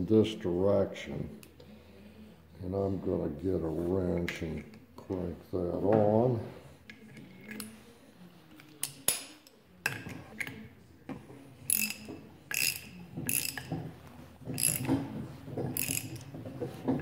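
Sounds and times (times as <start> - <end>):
ratchet wrench strokes: 11.7 - 13.8, 14.5 - 15.0, 15.7 - 16.3.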